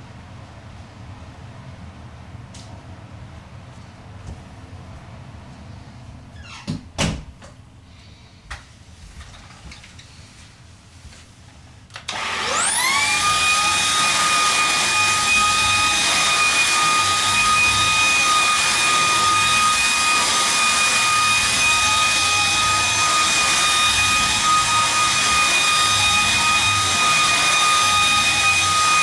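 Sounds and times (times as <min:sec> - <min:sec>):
vacuum cleaner motor whine: 0:12.0 - 0:29.0.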